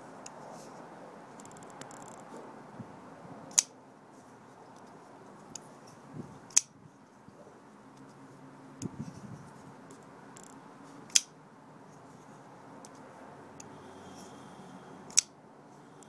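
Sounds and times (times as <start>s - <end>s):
knife blade folding clicks: 3.5s - 3.7s, 11.1s - 11.3s, 15.1s - 15.3s
folding knife snapping open: 15.1s - 15.3s.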